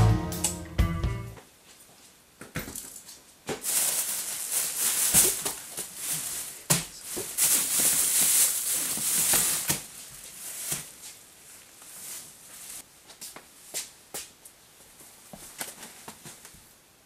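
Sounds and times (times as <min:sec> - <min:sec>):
plastic bags rustling and crinkling: 0:03.5 - 0:12.9.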